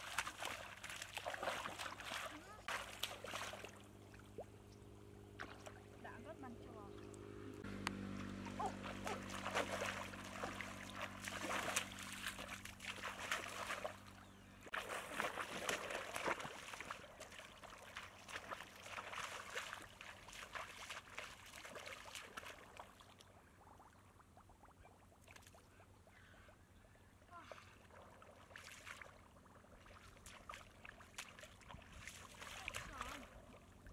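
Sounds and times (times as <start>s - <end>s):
muddy water splashing: 0.0s - 26.5s, 27.1s - 33.9s
low hum: 0.1s - 24.3s.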